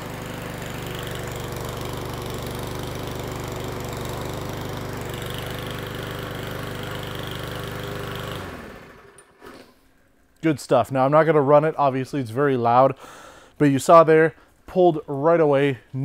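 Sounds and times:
lawn mower engine running: 0:00.0 - 0:09.7.

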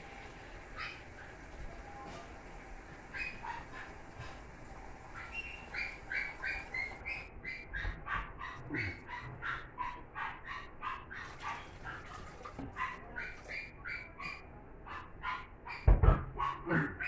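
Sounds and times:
small dog yapping: 0:03.0 - 0:04.4, 0:05.1 - 0:17.0.

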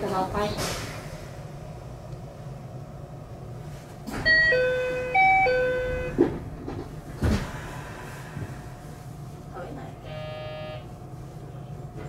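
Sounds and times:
low train hum: 0:00.0 - 0:12.0
train doors shutting thuds: 0:04.0 - 0:07.8.

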